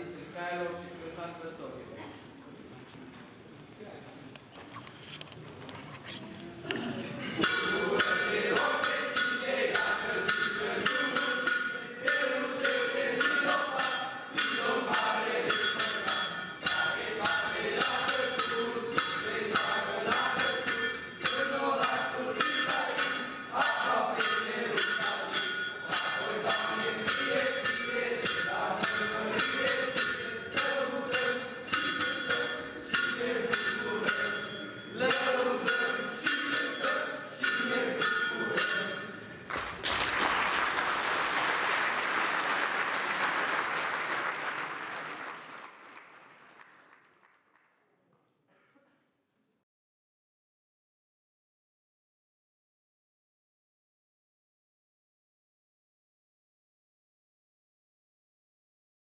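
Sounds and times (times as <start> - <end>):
young voices singing in unison: 6.7 - 39.2
jingling beat: 7.4 - 39.4.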